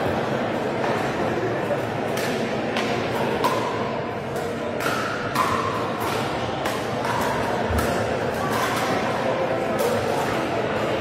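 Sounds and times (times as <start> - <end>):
murmur of voices: 0.0 - 11.0
paddles striking plastic balls: 2.1 - 9.0.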